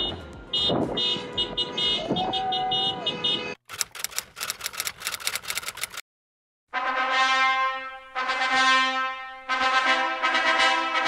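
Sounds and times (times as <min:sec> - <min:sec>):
car horns honking: 0:00.0 - 0:03.6.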